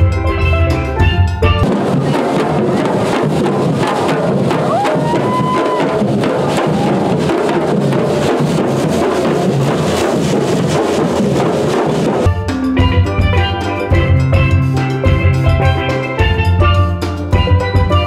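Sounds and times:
bass drums struck with mallets: 0.0s - 18.0s
marching drum band: 1.4s - 12.3s.

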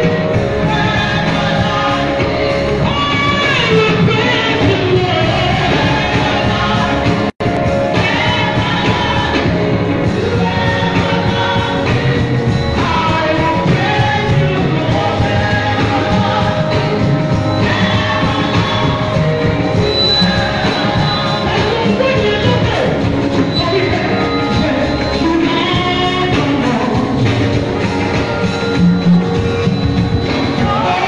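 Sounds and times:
woman singing into a microphone: 0.0s - 22.9s, 30.4s - 31.0s
live band with drums: 0.0s - 31.0s.

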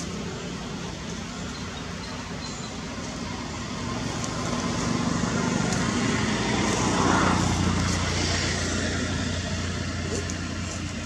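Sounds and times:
steady engine hum: 0.0s - 11.0s
vehicle passing: 3.4s - 11.0s.

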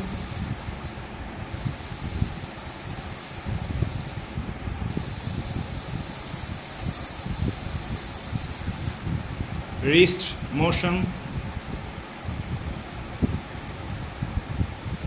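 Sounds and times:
servo motors whirring: 0.0s - 9.0s
steady hiss: 0.0s - 15.0s.

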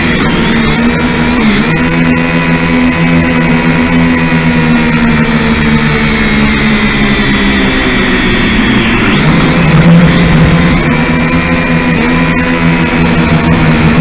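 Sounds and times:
drone motors whining: 0.0s - 14.0s.

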